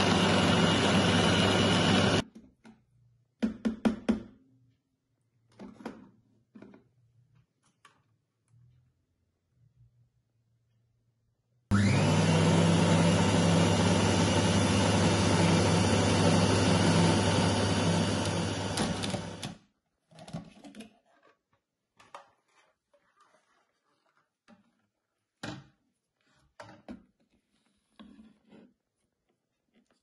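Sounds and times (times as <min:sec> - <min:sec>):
food processor motor running: 0:00.0 - 0:02.2, 0:11.7 - 0:19.6
spatula scraping bowl: 0:20.9 - 0:25.4, 0:27.3 - 0:29.2.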